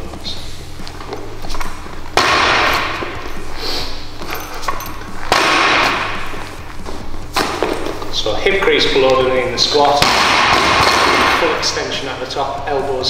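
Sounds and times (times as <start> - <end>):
barbell plates rattling: 1.1 - 6.6.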